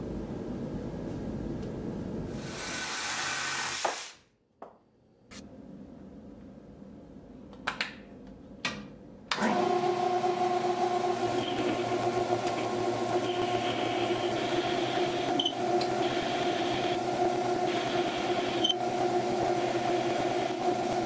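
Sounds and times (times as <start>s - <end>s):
hiss: 2.4s - 4.2s
metal lathe whining: 9.4s - 21.0s.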